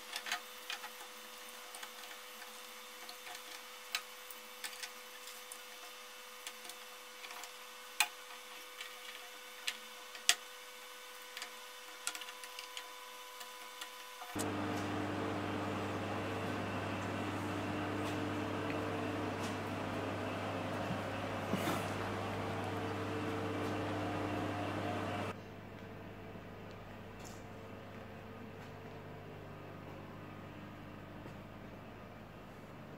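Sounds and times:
faint steady hum: 0.0 - 32.9
loud low hum: 14.4 - 26.3.

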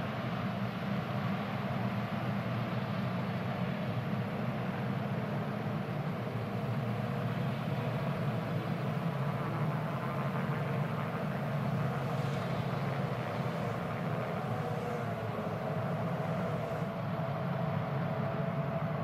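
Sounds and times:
race car engines droning: 3.9 - 19.0.

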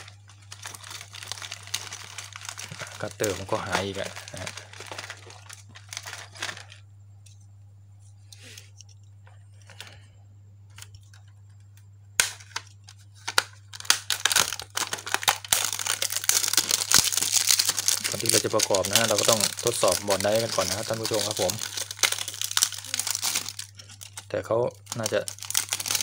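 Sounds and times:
crackling and rustling: 0.0 - 6.8, 14.3 - 26.0.

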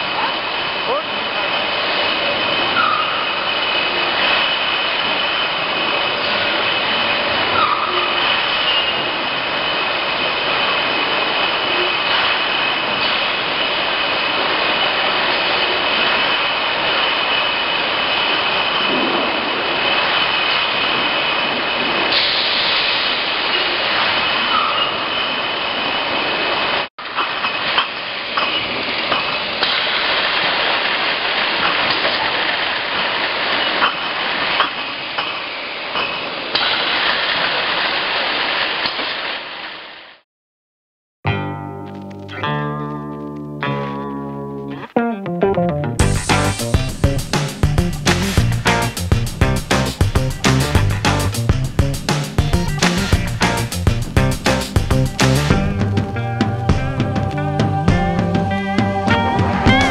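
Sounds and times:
constant high whine: 46.0 - 59.9.

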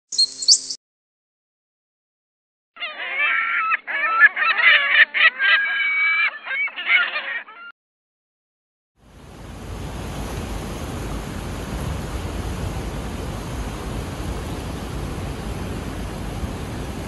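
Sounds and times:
large birds honking: 2.8 - 7.7.

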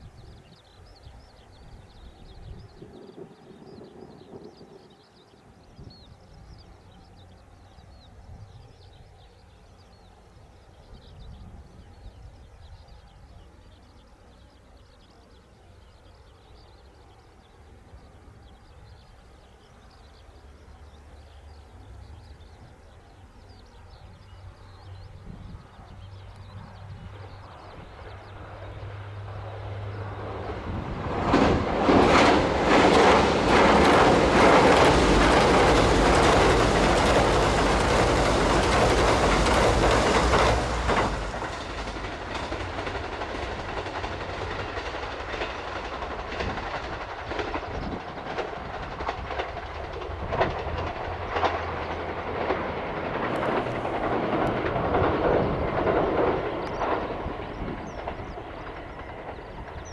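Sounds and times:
train wheels clacking on rail joints: 25.9 - 59.9.

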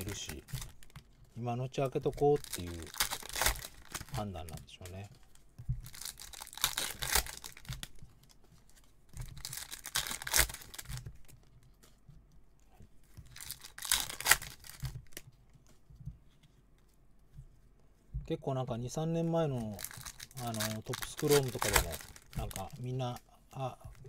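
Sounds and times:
foil wrappers tearing and crinkling: 0.0 - 1.0, 1.9 - 5.0, 5.8 - 8.0, 9.3 - 11.3, 13.2 - 15.2, 19.6 - 23.2.

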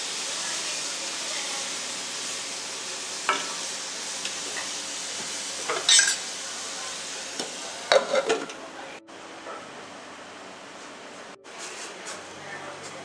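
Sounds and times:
vegetables sizzling in butter: 0.0 - 12.4
spatula scraping metal pan: 7.9 - 8.6.

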